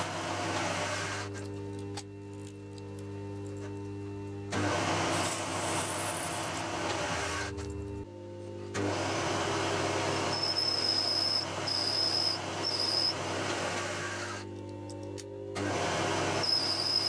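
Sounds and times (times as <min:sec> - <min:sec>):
milling machine spindle running: 0:00.0 - 0:08.0, 0:08.7 - 0:17.0
high-pitched cutter squeals: 0:10.2 - 0:14.4, 0:16.2 - 0:17.0.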